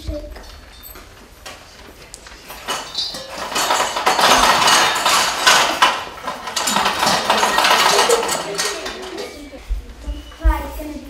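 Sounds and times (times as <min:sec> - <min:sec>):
loud clattering and rattling: 0:02.4 - 0:09.6.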